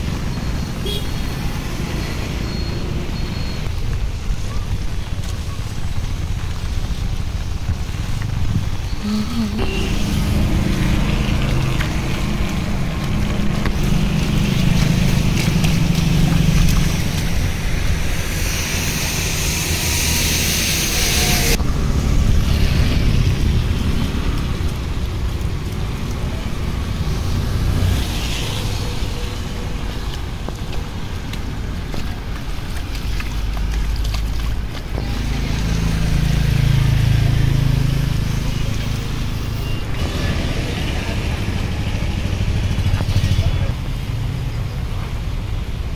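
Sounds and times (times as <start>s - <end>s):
vehicle engine rumble: 0.0s - 45.9s
heavy rain hiss: 0.1s - 34.0s
loud hiss: 17.0s - 21.6s.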